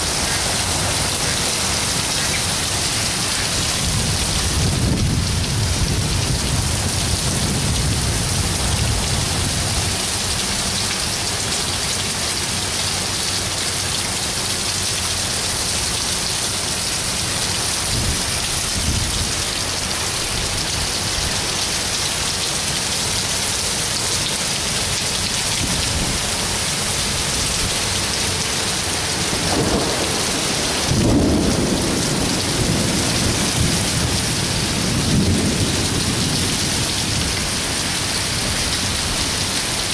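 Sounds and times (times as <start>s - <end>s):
heavy rain hissing: 0.0s - 39.9s
thunder rumbling: 3.5s - 10.3s, 29.2s - 39.4s.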